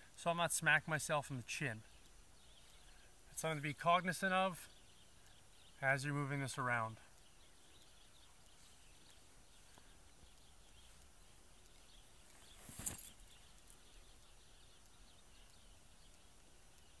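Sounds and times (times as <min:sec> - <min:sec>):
bird chirps: 0:01.6 - 0:17.0
rifle handling rustle and click: 0:12.2 - 0:13.8.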